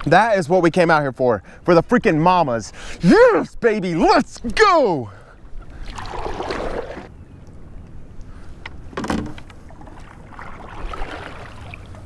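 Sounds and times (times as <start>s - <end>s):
kayak paddle splashing: 5.7s - 7.1s, 9.1s - 12.0s.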